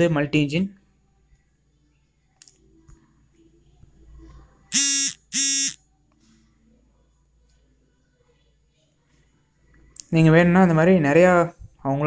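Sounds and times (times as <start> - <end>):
short electronic buzzes: 4.7 - 5.8.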